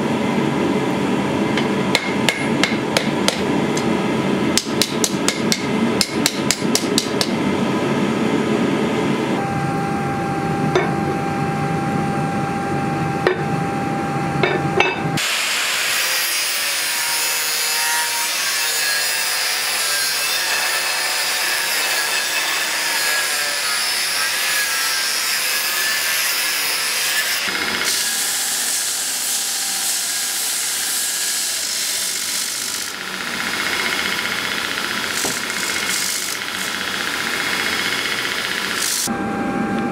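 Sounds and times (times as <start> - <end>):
hammer blows on anvil: 14.4 - 15.3
belt grinder running: 15.2 - 39.1
power grinder grinding steel: 15.2 - 39.1.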